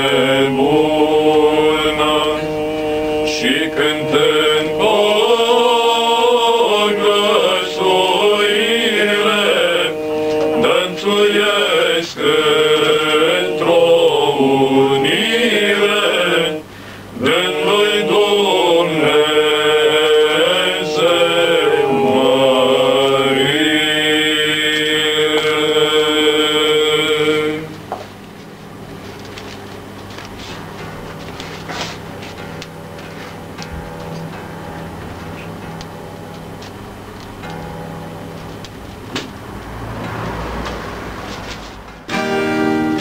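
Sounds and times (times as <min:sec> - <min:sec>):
male vocal group singing a carol: 0:00.0 - 0:27.9.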